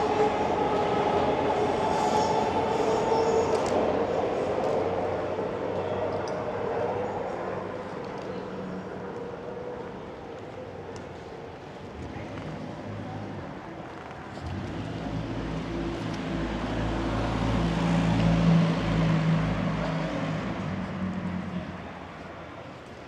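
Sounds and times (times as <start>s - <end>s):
large vehicle passing: 14.3s - 22.2s.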